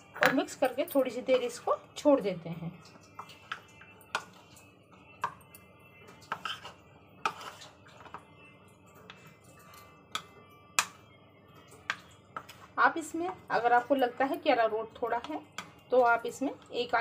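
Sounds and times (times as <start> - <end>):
spoon scraping a plate: 6.3 - 8.2.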